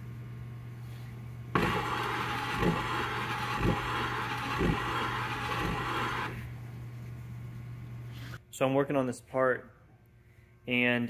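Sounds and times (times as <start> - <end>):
abrasive sanding rasp: 1.6 - 6.4.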